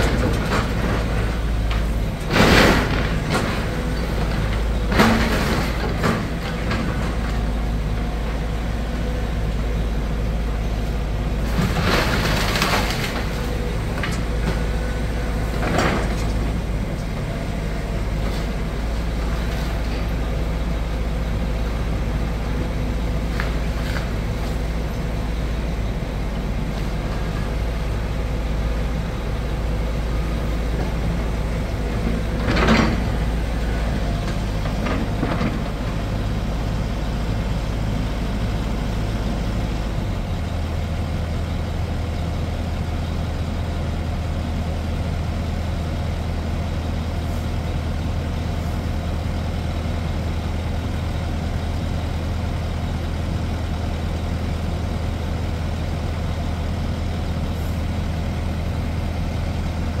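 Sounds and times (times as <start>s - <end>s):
loud demolition crash: 0.0s - 7.4s, 11.4s - 16.8s
diesel excavator engine running: 0.0s - 60.0s.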